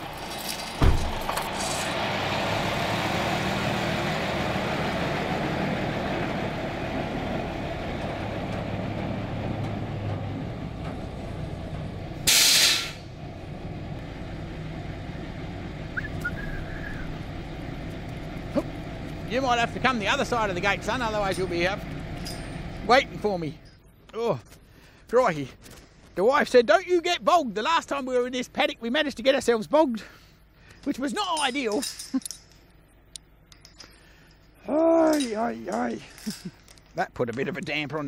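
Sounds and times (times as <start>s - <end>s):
truck engine running: 0.0s - 23.7s
air brakes hissing: 12.2s - 13.2s.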